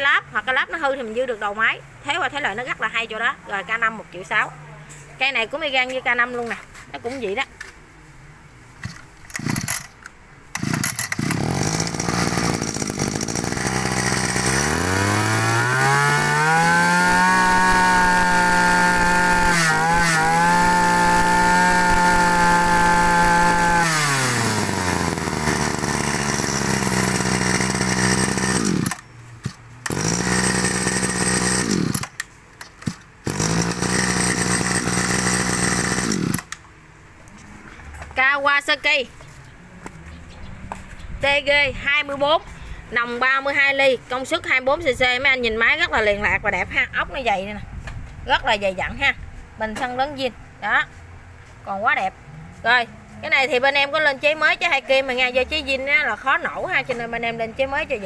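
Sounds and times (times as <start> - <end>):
brush-cutter engine revving: 8.8 - 36.6.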